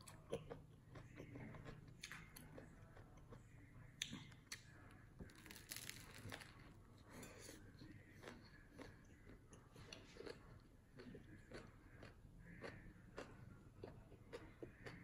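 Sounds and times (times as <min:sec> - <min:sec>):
bread crust crunching while chewing: 0:05.2 - 0:06.8.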